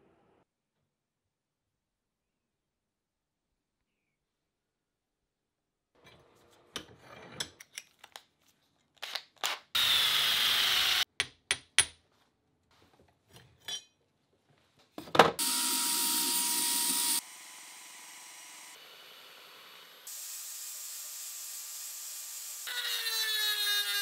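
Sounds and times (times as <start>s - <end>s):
tools knocking and clicking: 11.1s - 12.0s
belt sander running: 15.4s - 22.7s
power sanding on metal: 15.4s - 24.0s.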